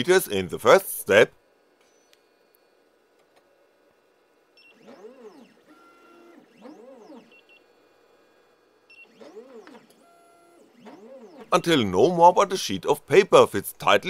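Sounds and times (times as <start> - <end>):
stepper motors whining: 4.6 - 14.0.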